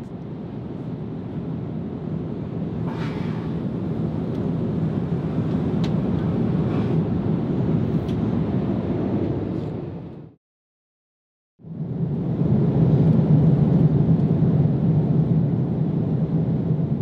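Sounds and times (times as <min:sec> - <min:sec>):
airplane cabin rush: 0:02.4 - 0:10.1.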